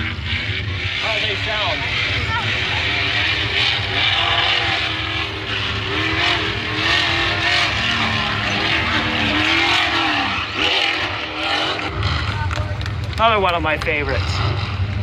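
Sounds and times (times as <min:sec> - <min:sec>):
truck engine revving: 0:00.0 - 0:15.0.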